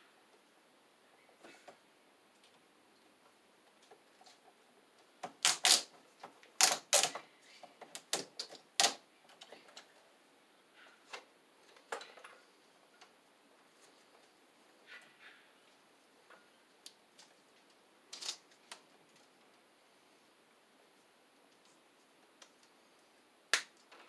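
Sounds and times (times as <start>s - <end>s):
electrical cable clicking and snapping: 5.2s - 9.9s.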